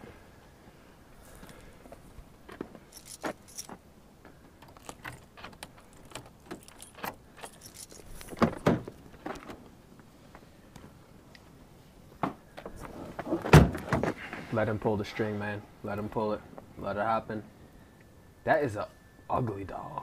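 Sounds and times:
rummaging clicks and rattles: 2.4 - 9.7.

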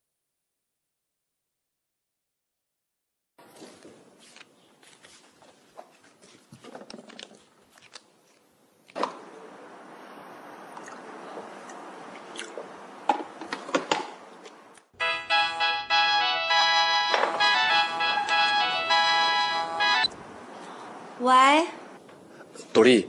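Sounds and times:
paper rustling and crinkling: 3.5 - 8.4.

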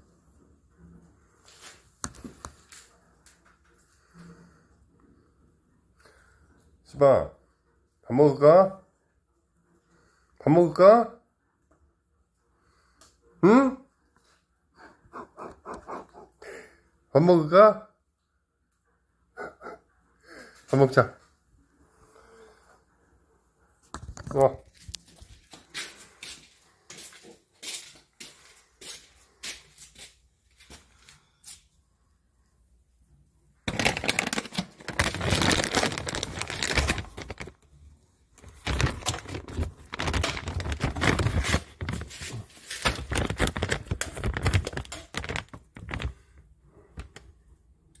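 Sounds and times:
dry dog food rattling: 33.7 - 37.6, 38.4 - 42.2.

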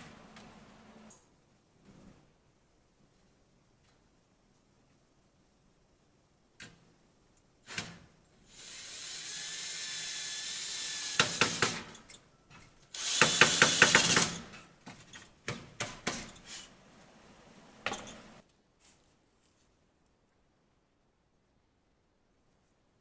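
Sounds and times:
cordless drill whirring: 8.5 - 11.8, 12.9 - 14.4.

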